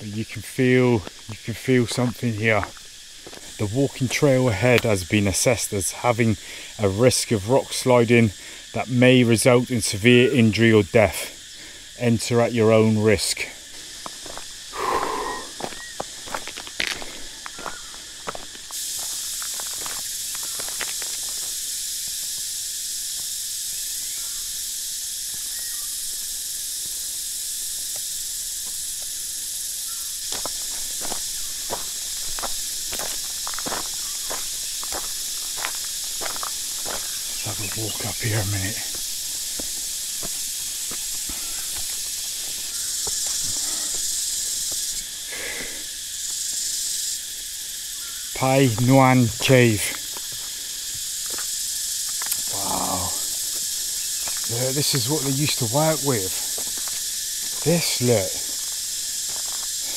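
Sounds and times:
cicadas droning: 0.0 - 59.9
footsteps: 0.9 - 4.9, 13.6 - 21.6, 30.3 - 45.0, 53.1 - 55.6, 56.2 - 59.9.

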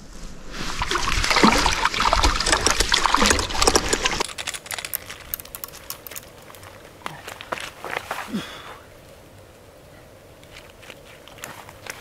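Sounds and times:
water splashing and trickling: 0.6 - 4.3.

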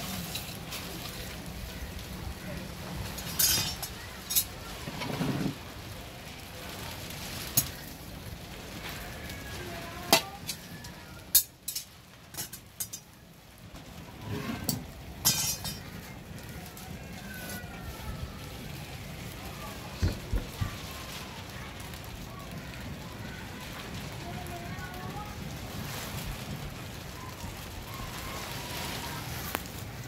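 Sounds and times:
fire hissing: 0.0 - 30.0
metal tongs clinking on crucible: 3.2 - 4.5, 15.2 - 15.8.

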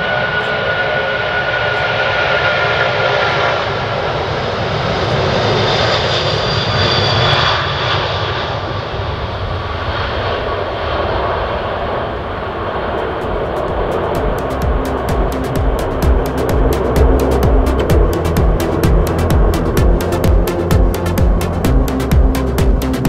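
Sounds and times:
jet airliner engines passing: 0.0 - 23.0.

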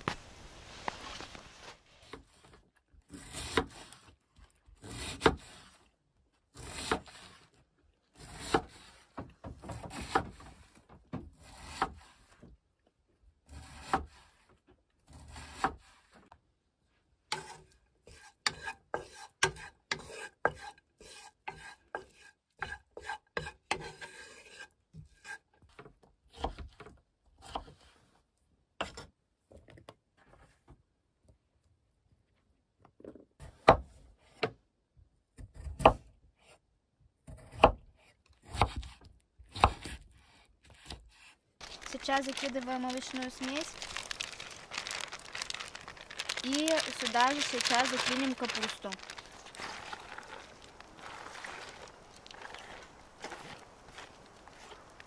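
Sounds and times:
knife slicing cabbage on wooden board: 3.1 - 4.0, 4.8 - 5.7, 6.5 - 7.4, 8.2 - 9.0, 13.5 - 14.2, 37.3 - 40.0.

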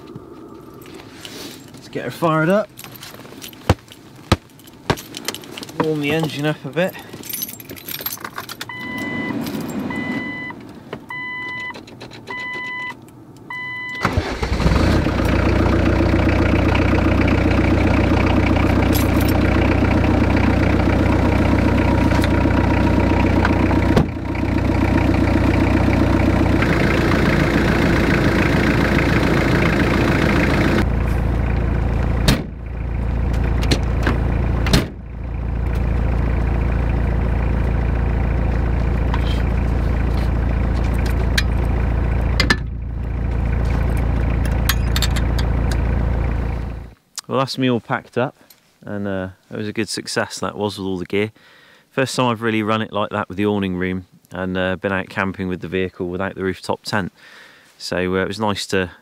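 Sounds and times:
diesel engine starting and idling: 8.6 - 47.0
warning chime beeping: 8.7 - 11.7.

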